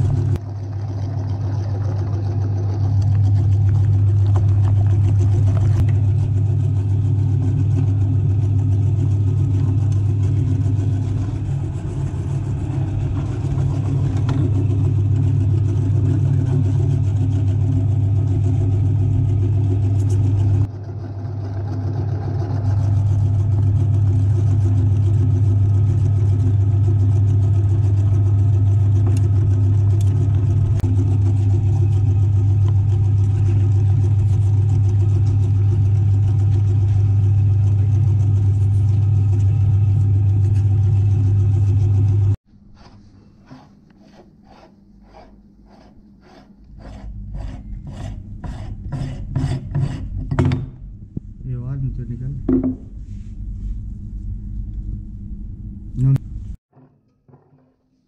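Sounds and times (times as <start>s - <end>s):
electric meat grinder humming: 0.0s - 42.4s.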